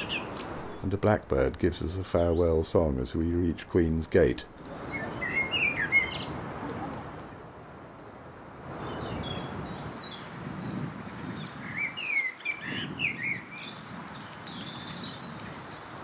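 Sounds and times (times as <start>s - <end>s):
blackbird singing: 0.0s - 1.0s, 4.9s - 6.5s, 11.3s - 15.9s.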